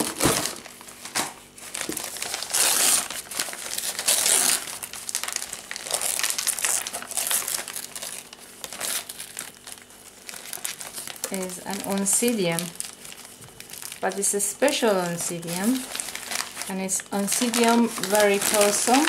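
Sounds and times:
paper crinkling and rustling: 0.0s - 19.0s.

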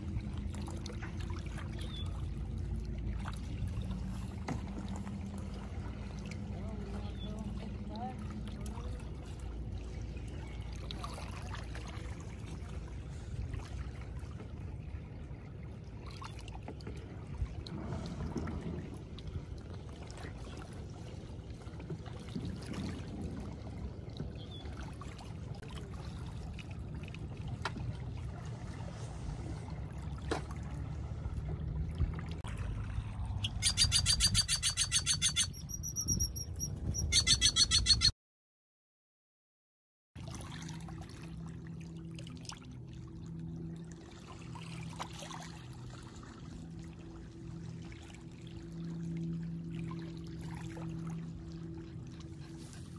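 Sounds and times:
steady low rumble: 0.0s - 37.2s
bird rattling call and whistles: 33.4s - 38.1s.

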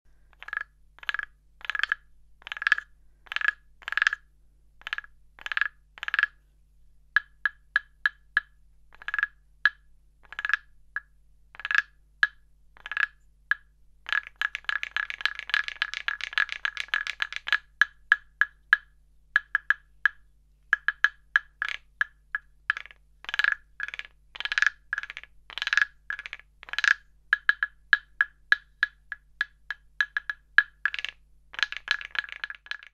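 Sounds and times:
wooden guiro clacking: 0.4s - 6.4s, 7.1s - 32.9s
fast rattling clicks: 14.1s - 18.8s, 20.8s - 32.9s.

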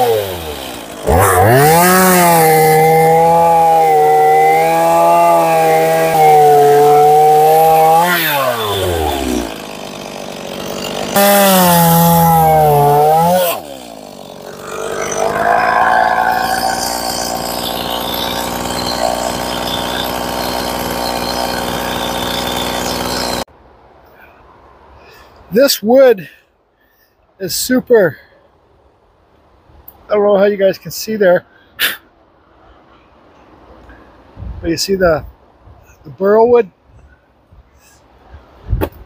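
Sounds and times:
chainsaw cutting wood: 0.0s - 23.5s.

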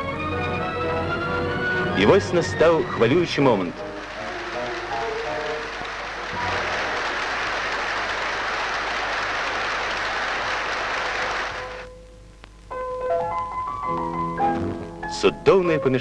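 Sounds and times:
crowd applauding: 2.0s - 11.9s.

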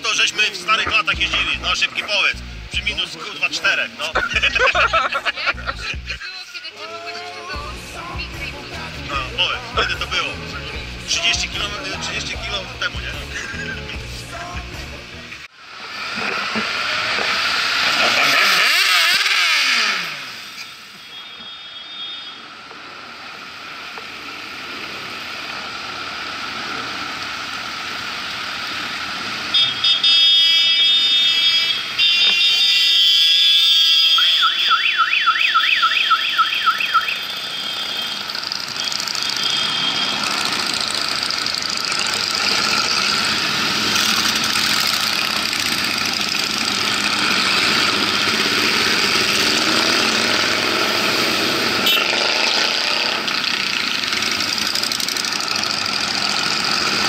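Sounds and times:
motorcycle engines passing: 0.0s - 6.2s, 15.7s - 21.0s, 36.1s - 57.0s
loud horn tones: 29.5s - 34.8s, 36.0s - 40.7s, 51.6s - 52.6s
warbling siren: 32.4s - 40.4s.

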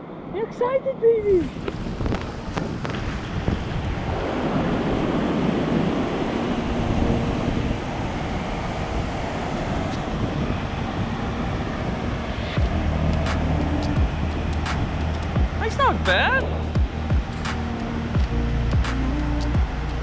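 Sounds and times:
wind buffeting microphone: 0.0s - 20.0s
surf breaking on beach: 1.5s - 16.5s.

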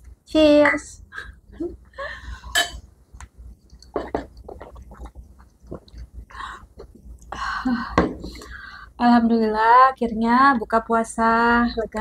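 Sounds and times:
sipping tea: 2.4s - 7.4s
chewing: 3.6s - 6.2s.

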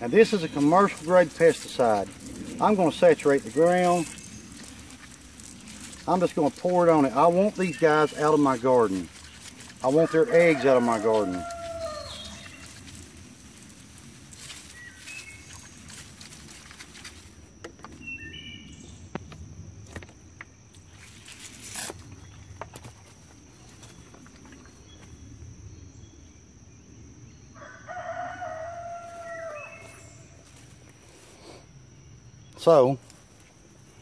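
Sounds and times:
rooster crowing: 9.9s - 12.6s, 27.6s - 30.2s.

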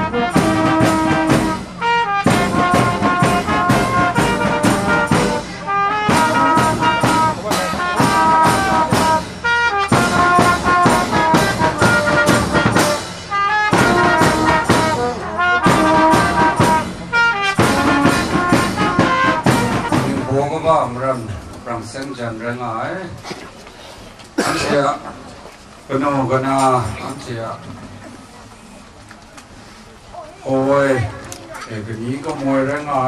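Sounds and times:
brass band playing: 0.0s - 21.3s.

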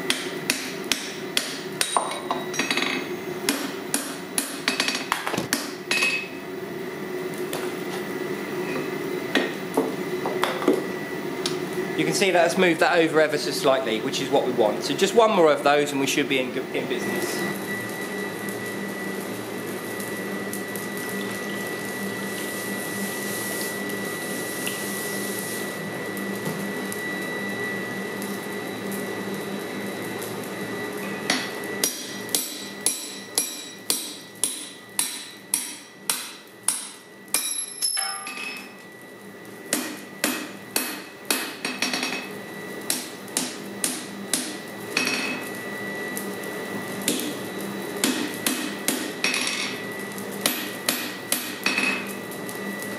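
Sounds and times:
steady background hum: 0.0s - 52.9s
hammer ringing on hot punch: 31.3s - 38.7s.

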